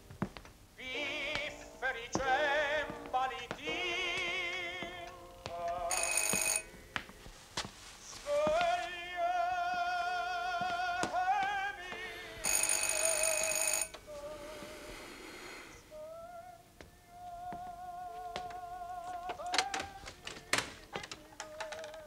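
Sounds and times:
operatic singing with vibrato: 0:00.8 - 0:06.6, 0:08.1 - 0:15.0, 0:15.7 - 0:22.0
electric doorbell ringing: 0:05.9 - 0:06.7, 0:12.5 - 0:14.0.

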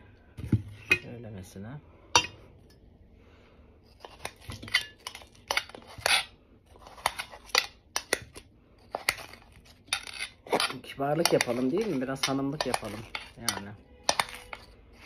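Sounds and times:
knife knocking and scraping metal bowl: 0:04.0 - 0:15.0.

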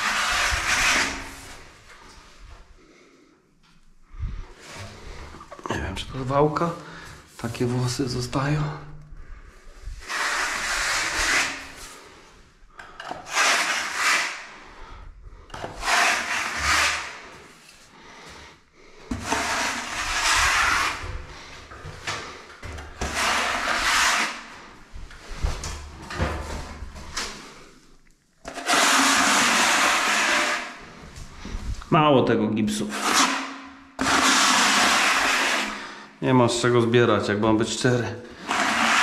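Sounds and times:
blade scraping plaster on wall: 0:00.0 - 0:02.2, 0:09.9 - 0:12.2, 0:13.0 - 0:14.8, 0:15.5 - 0:17.9, 0:19.1 - 0:27.6, 0:28.4 - 0:31.5, 0:32.8 - 0:36.0, 0:38.2 - 0:39.0.

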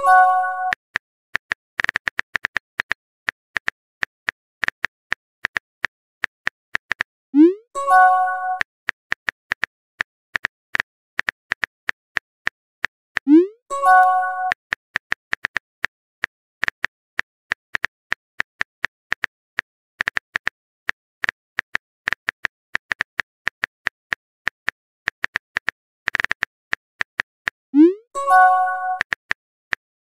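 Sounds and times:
keyboard typing clicks: 0:06.8 - 0:09.6, 0:13.2 - 0:15.6, 0:21.2 - 0:29.8.

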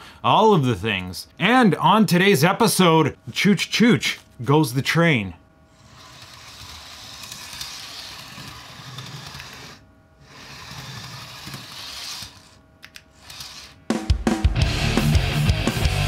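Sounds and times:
small electric motor whirring: 0:05.7 - 0:13.9.

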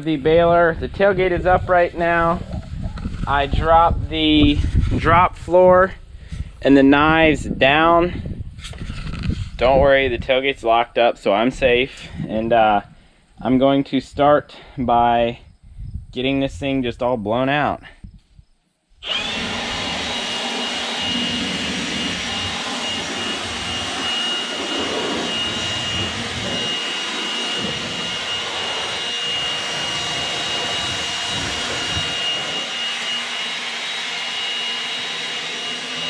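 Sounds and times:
rushing air: 0:00.0 - 0:05.4, 0:19.0 - 0:36.0
air blower whining: 0:00.0 - 0:13.0, 0:19.0 - 0:36.0.

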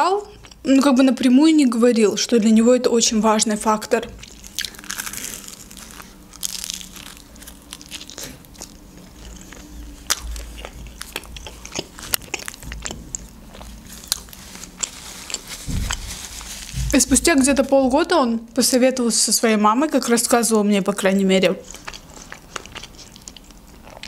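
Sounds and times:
biting into toasted bread: 0:04.2 - 0:16.7
crunchy chewing: 0:04.2 - 0:17.0, 0:21.6 - 0:24.0.

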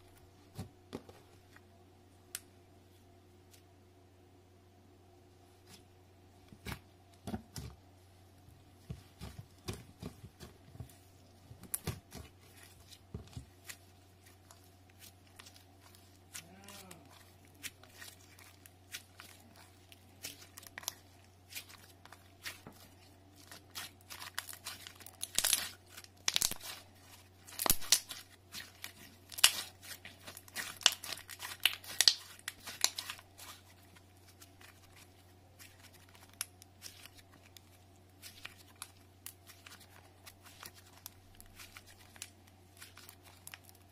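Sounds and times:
slime squished by hand: 0:11.6 - 0:43.9.

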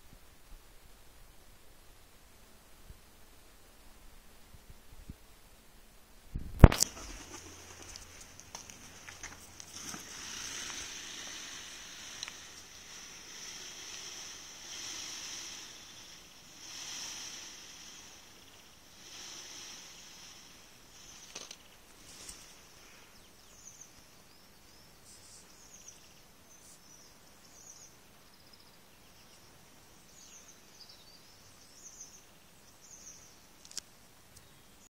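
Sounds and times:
peacock feathers rattling: 0:06.7 - 0:23.1
high bird chirps: 0:09.8 - 0:26.2.

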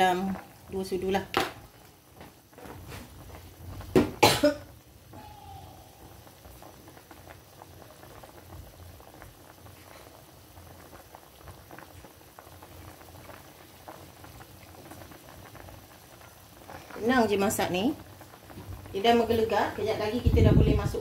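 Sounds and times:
broth boiling and bubbling: 0:00.0 - 0:21.0
person coughing: 0:04.2 - 0:04.7.

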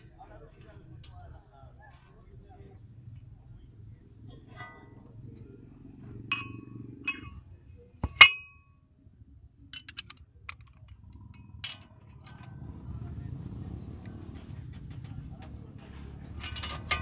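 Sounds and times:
spanners and sockets clinking: 0:06.3 - 0:07.4, 0:08.0 - 0:08.6, 0:09.7 - 0:12.5, 0:16.2 - 0:17.0.

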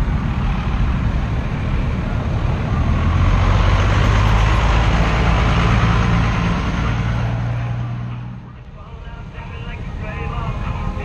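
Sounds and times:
pickup truck driving past: 0:00.0 - 0:08.6.

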